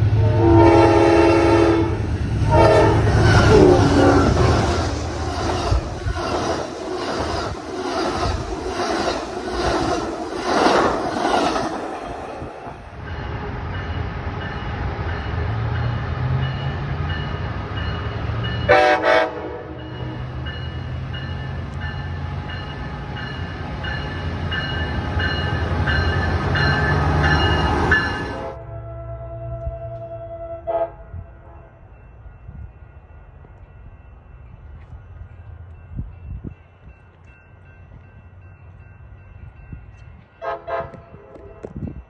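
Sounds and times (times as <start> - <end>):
distant train horn: 0.0 - 4.8, 18.0 - 20.4, 25.3 - 32.0, 40.3 - 42.0
loud train horn blast: 0.0 - 4.8, 18.6 - 20.3, 28.1 - 31.8, 40.4 - 41.8
locomotive rumbling: 0.0 - 42.0
train wheels clicking over rail joints: 2.1 - 14.6.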